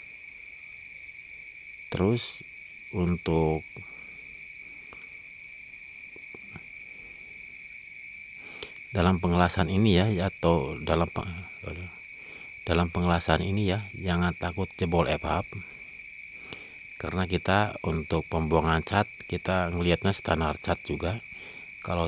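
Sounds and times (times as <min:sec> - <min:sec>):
cricket trilling: 0:00.0 - 0:22.0
person speaking: 0:12.7 - 0:15.7.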